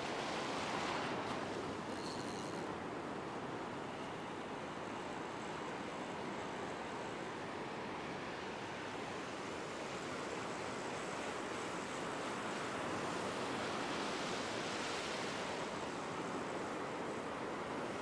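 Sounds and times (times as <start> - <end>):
ocean waves breaking on beach: 0.0 - 2.1, 5.7 - 18.0.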